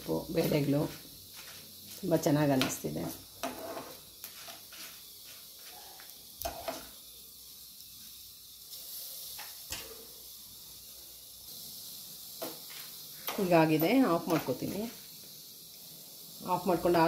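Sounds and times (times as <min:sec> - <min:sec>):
spices sizzling in oil: 0:00.0 - 0:17.0.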